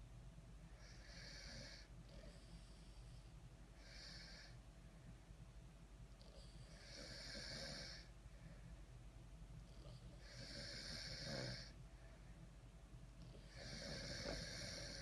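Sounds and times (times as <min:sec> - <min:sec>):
person snoring: 0:06.7 - 0:08.1, 0:10.2 - 0:11.7, 0:13.4 - 0:15.0.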